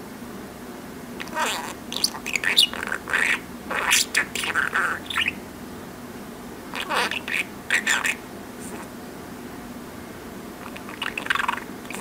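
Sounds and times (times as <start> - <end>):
budgerigar chattering and warbling: 1.2 - 5.4, 6.7 - 8.9, 10.6 - 12.0.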